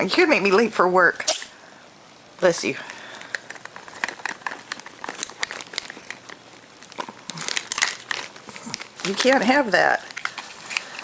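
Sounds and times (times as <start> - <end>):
rustling and crinkling: 2.9 - 11.0.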